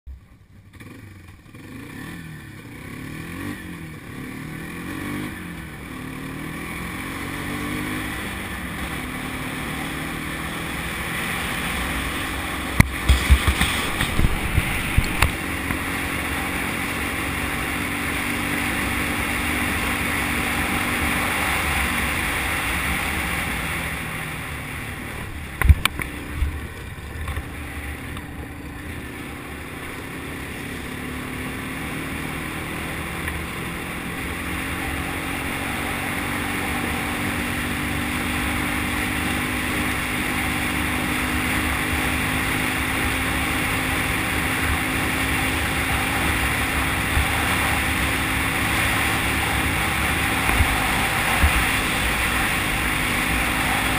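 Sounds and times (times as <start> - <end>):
atv engine running: 0.1 - 53.9
rushing noise: 7.8 - 28.0, 42.4 - 53.9.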